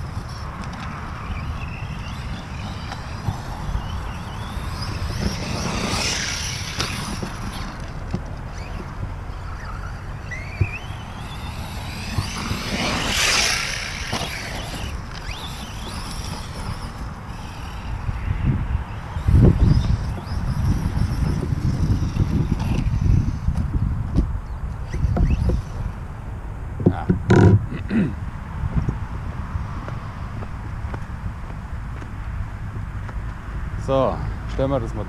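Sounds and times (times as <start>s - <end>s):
electric motor whining: 0.0s - 26.2s
wind rumbling on microphone: 0.0s - 35.0s.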